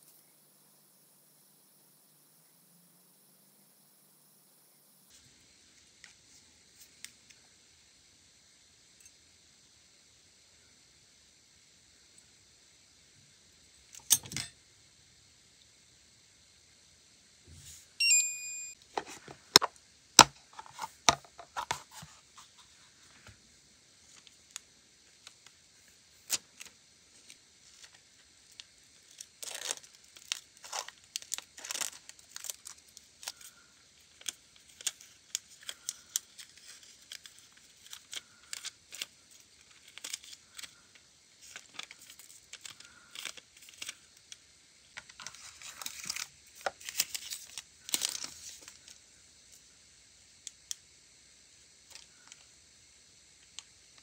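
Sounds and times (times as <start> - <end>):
short electronic beep: 18.0 - 18.8
foil crinkling: 26.2 - 44.4, 45.0 - 49.0.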